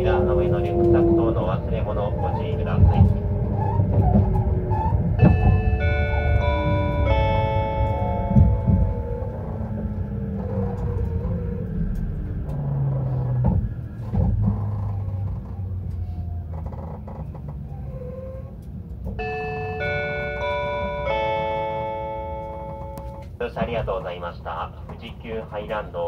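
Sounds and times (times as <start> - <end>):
rail clicks: 0.0 - 16.0
train wheels rumbling: 0.0 - 26.0
electronic chime melody: 5.2 - 10.3, 19.2 - 23.3.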